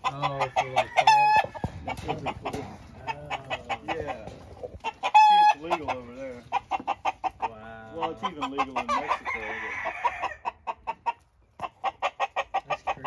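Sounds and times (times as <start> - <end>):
chickens clucking: 0.0 - 13.0
rooster crowing: 0.1 - 2.0, 8.8 - 10.6.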